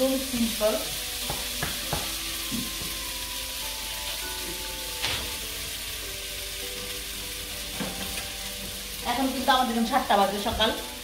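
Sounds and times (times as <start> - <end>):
pot cooking with hiss: 0.0 - 11.0
soft background music: 0.0 - 11.0
wooden spoon knocking pot: 1.2 - 3.0.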